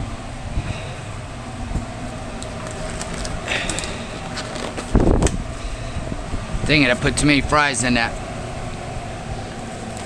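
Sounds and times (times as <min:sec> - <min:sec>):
low mechanical hum: 0:00.0 - 0:10.0
rubber glove rustle: 0:02.5 - 0:05.3.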